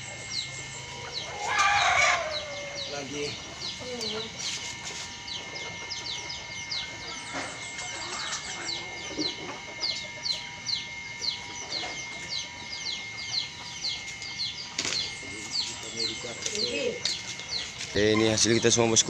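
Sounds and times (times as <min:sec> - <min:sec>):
chick peeping: 0:00.0 - 0:19.0.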